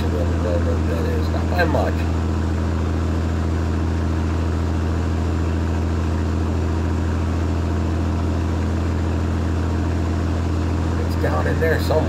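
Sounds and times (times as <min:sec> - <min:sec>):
road noise: 0:00.0 - 0:12.0
truck diesel engine drone: 0:00.0 - 0:12.0.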